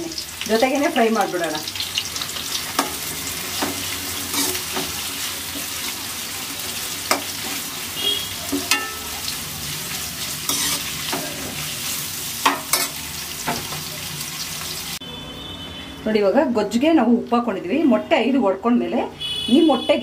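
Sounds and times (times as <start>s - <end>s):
vegetables sizzling in hot oil: 0.0s - 15.0s
spatula scraping a pan: 2.6s - 6.0s, 10.2s - 13.8s.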